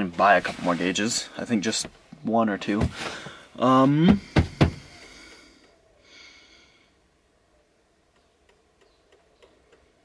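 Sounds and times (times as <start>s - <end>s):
person breathing out through nose: 4.8s - 7.0s.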